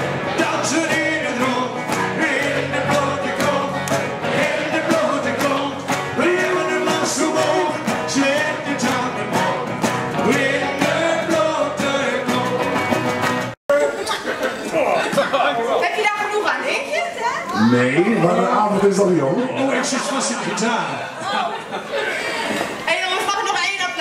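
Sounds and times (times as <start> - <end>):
resonator guitars: 0.0 - 13.6
person singing: 0.3 - 12.8.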